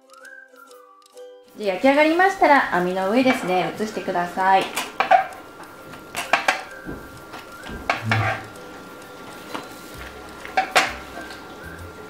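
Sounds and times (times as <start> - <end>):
rolls knocking on wire rack: 3.2 - 5.4, 7.7 - 8.6
spatula scraping baking sheet: 8.0 - 8.5.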